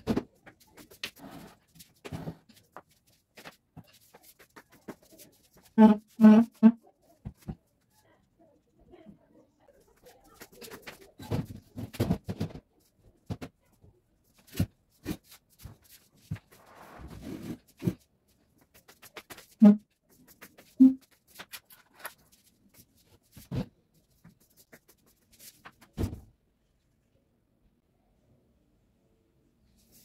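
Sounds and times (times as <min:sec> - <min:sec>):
furniture scraping: 0:16.6 - 0:18.0.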